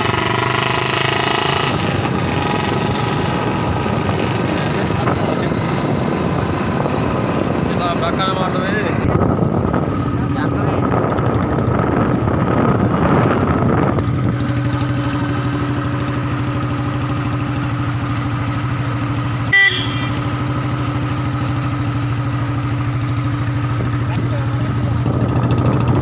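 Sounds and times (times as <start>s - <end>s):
motorcycle engine idling: 1.8s - 26.0s
short beep: 19.5s - 20.3s.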